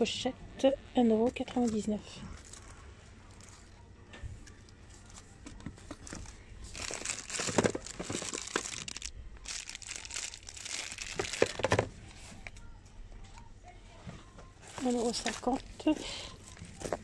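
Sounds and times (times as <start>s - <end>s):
plastic wrapping crinkling: 1.4s - 3.8s, 4.4s - 12.5s, 14.7s - 17.0s.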